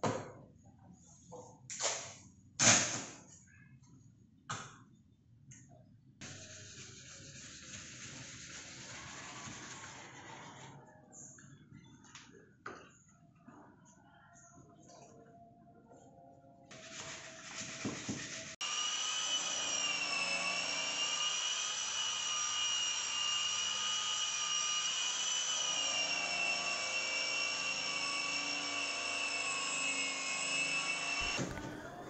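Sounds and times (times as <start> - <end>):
rough tool noise: 16.7 - 32.0
power tool motor whine: 16.8 - 32.0.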